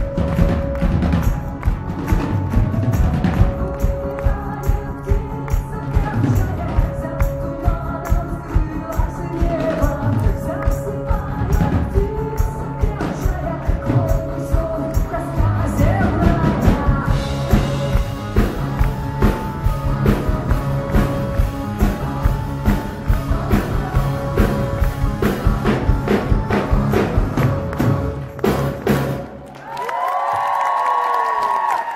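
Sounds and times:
drum beat: 0.0 - 15.2, 15.8 - 29.3
live rock band playing: 0.0 - 29.5
lead vocal singing: 3.8 - 28.4.

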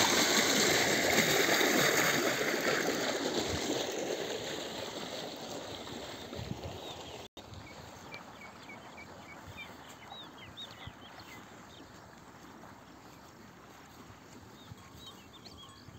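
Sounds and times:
birds chirping: 6.7 - 13.3, 13.9 - 15.9.

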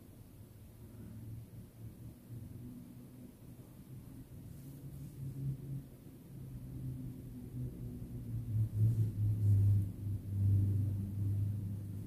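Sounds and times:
low rumble: 3.5 - 12.0.

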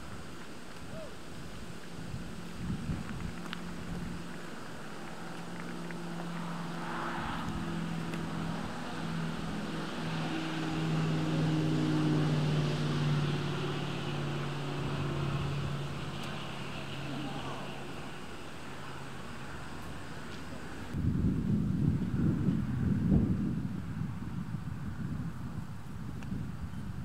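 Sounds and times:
engine droning hum: 0.0 - 27.0.

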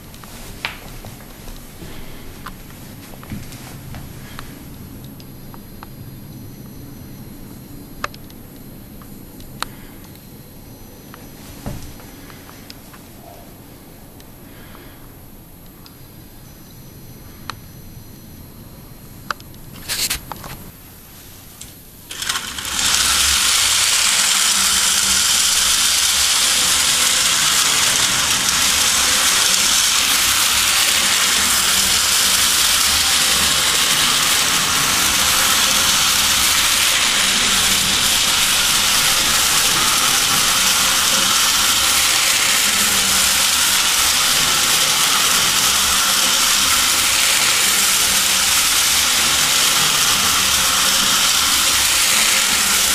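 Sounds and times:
toy train whirring rattle: 22.0 - 52.9.

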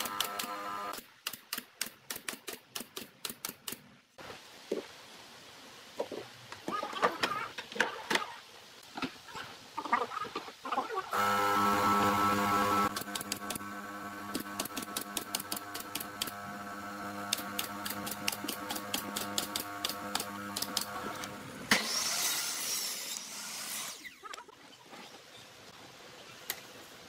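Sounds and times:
nail gun firing: 0.0 - 2.9, 12.9 - 13.6, 14.3 - 16.4.

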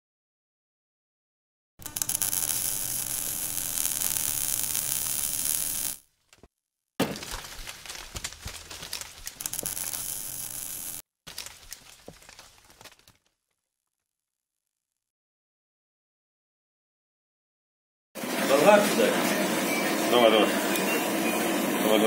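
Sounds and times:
hum: 1.8 - 6.0, 9.4 - 11.0
loud crackling hiss: 1.8 - 6.0, 9.4 - 11.0.

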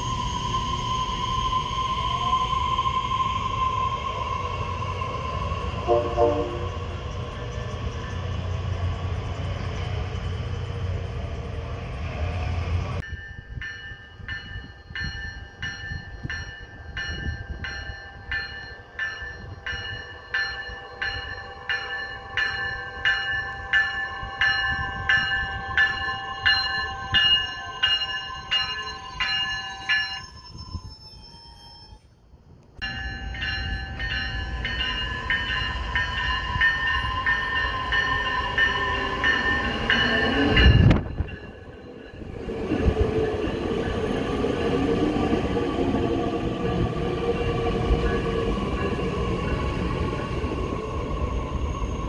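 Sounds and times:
train rumbling: 0.0 - 52.0
bell striking: 13.0 - 30.4, 32.8 - 42.3.

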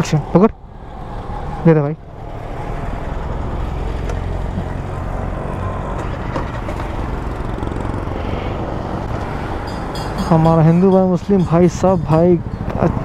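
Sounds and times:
motorcycle engine running: 6.0 - 8.1.

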